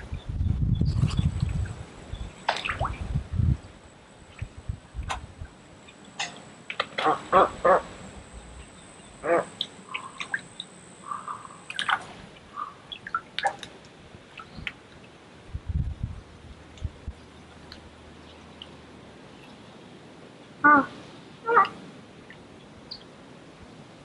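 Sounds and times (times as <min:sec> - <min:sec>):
faint high whine: 0:00.0 - 0:13.4
harsh bird calls: 0:08.6 - 0:10.4, 0:11.0 - 0:11.7, 0:12.5 - 0:13.1.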